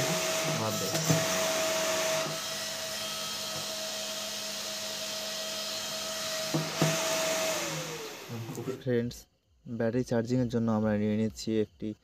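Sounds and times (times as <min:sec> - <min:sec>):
fan motor whine: 0:00.0 - 0:08.8.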